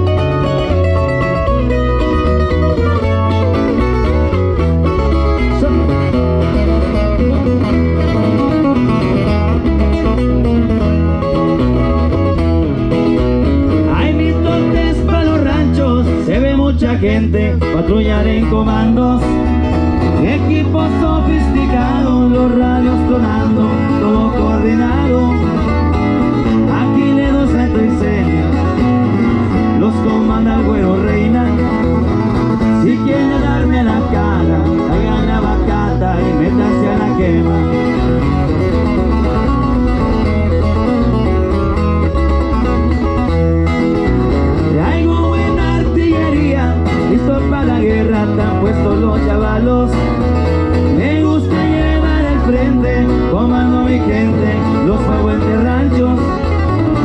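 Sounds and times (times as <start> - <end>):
band playing a song: 0.0 - 57.0
strong bass beat: 0.0 - 57.0
person singing: 13.9 - 38.4, 44.6 - 56.8.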